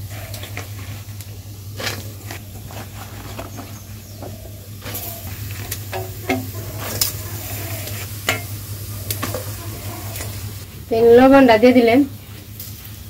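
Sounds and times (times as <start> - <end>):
steady low hum: 0.0 - 13.0
cooking utensils clattering: 1.8 - 10.6.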